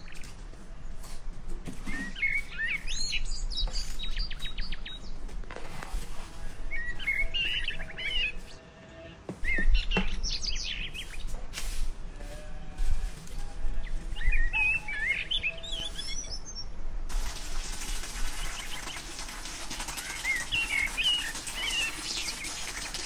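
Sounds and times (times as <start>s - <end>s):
small birds chirping: 1.8s - 8.6s, 9.4s - 11.4s, 13.8s - 16.7s, 18.3s - 23.0s
brush scratching on stone: 3.8s - 8.6s, 17.2s - 23.0s.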